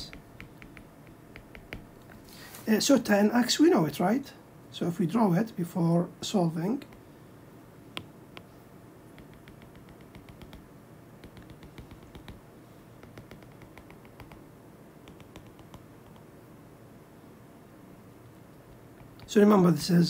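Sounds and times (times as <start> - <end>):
stylus tapping on glass screen: 0.0 - 2.2, 9.2 - 10.6, 11.2 - 12.4, 13.0 - 14.4, 15.1 - 16.3.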